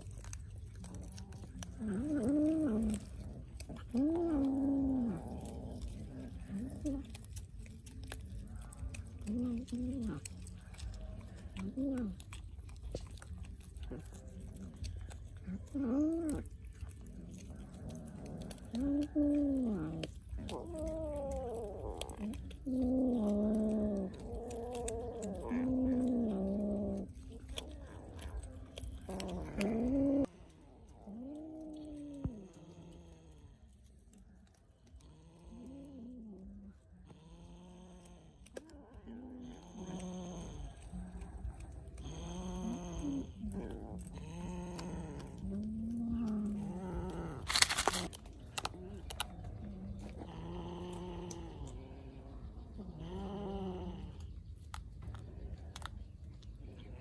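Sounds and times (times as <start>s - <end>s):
crunching fish: 0.0s - 52.1s, 53.0s - 57.0s
small clicks while eating: 0.0s - 57.0s
cat meow-growling: 15.4s - 30.4s, 37.2s - 54.3s.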